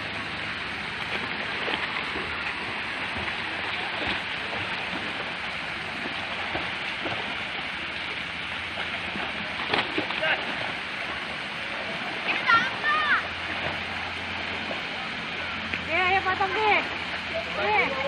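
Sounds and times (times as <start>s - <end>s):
children splashing: 0.0s - 16.8s
fountain water pouring into pool: 0.0s - 18.0s.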